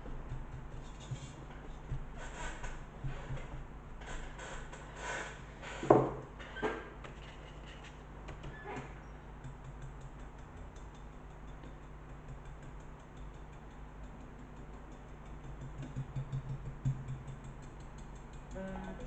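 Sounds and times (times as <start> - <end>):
steady low hum: 0.0 - 19.0
paintbrush rubbing: 0.7 - 2.6.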